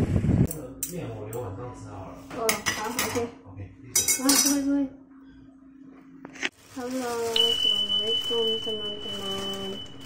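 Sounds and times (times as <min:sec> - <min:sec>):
cutlery and dishes clinking: 0:04.0 - 0:04.7.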